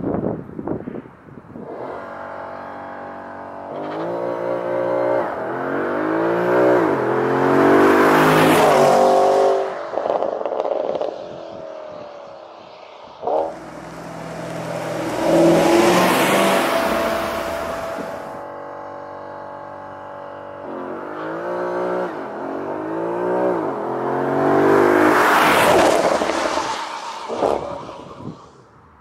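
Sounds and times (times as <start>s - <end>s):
car exhaust accelerating hard: 13.3s - 18.4s.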